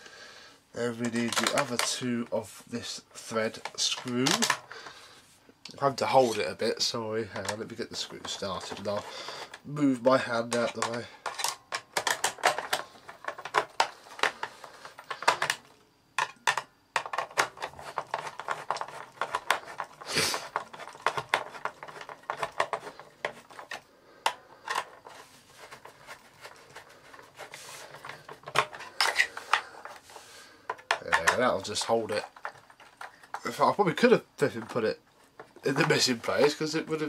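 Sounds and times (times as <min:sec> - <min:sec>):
clicks and knocks of handling: 0:00.9 - 0:02.0, 0:03.5 - 0:04.7, 0:10.4 - 0:33.5.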